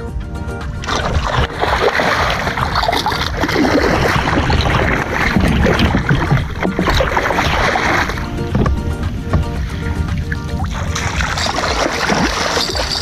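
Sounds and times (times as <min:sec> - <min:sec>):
fish splashing at the surface: 0:00.9 - 0:08.3, 0:10.7 - 0:13.0.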